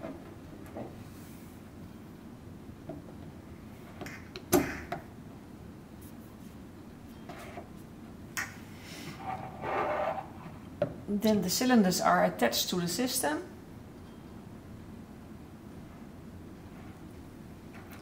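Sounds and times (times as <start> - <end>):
plastic rubbing and scraping: 9.1 - 10.6.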